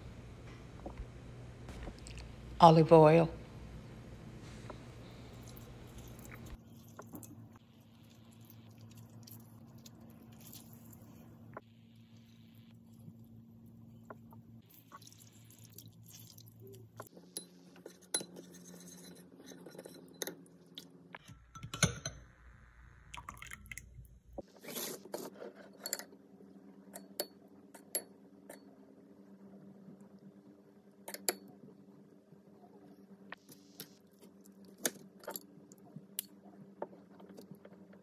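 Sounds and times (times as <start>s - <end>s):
faint low hum: 0.0s - 17.5s, 25.8s - 38.0s.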